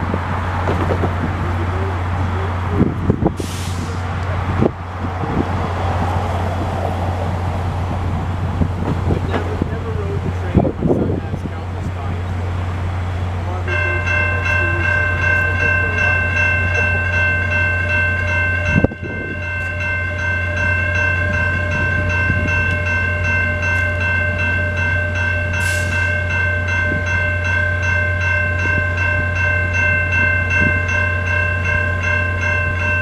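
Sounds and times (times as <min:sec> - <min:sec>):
diesel locomotive idling: 0:00.0 - 0:33.0
level-crossing bell ringing: 0:13.6 - 0:33.0.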